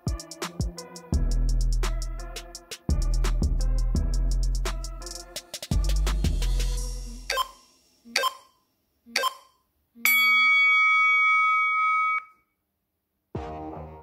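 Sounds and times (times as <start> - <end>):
drum-backed workout music: 0.0 - 7.3
long timer beep: 7.3 - 8.5, 9.2 - 12.3
short timer beeps: 7.3 - 8.5, 9.2 - 9.5.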